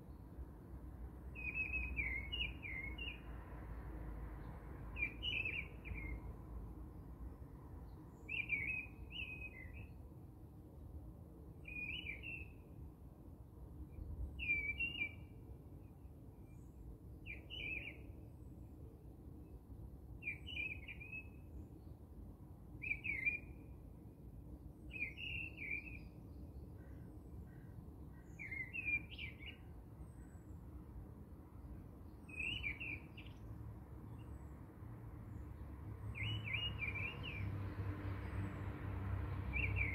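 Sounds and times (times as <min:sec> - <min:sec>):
bird chirping: 0:01.3 - 0:03.2, 0:05.0 - 0:06.2, 0:07.9 - 0:10.0, 0:11.6 - 0:12.6, 0:14.4 - 0:15.3, 0:16.4 - 0:18.2, 0:20.2 - 0:21.5, 0:22.8 - 0:23.7, 0:24.9 - 0:30.5, 0:32.1 - 0:33.5, 0:36.0 - 0:37.5, 0:39.5 - 0:39.9.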